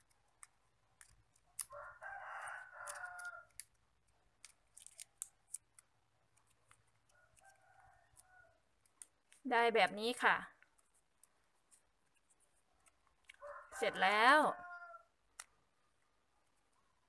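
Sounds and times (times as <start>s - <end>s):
plastic straw crinkling: 0.0s - 13.6s
rooster crowing: 1.7s - 3.6s, 13.4s - 15.1s.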